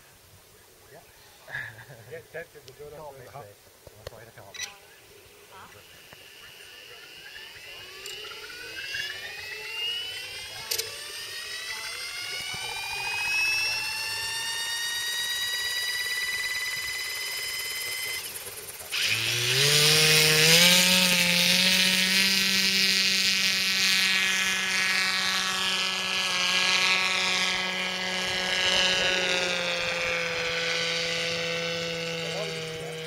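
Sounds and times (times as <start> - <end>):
small model engine whining: 4.4 - 33.0.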